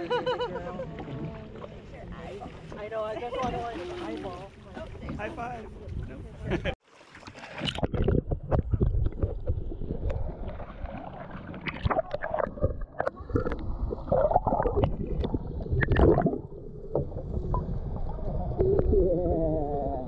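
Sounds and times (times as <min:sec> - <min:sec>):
water sloshing and gurgling: 0:00.1 - 0:20.0
wind rumbling on microphone: 0:04.7 - 0:06.8.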